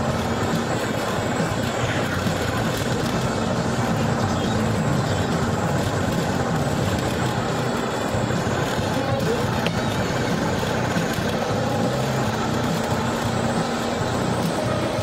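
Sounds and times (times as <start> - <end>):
car engine and road noise: 0.0 - 15.0.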